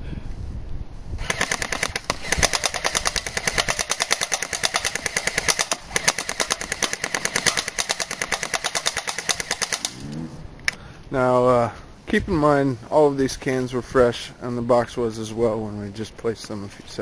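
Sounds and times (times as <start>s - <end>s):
airsoft gun firing bursts: 1.2s - 10.0s.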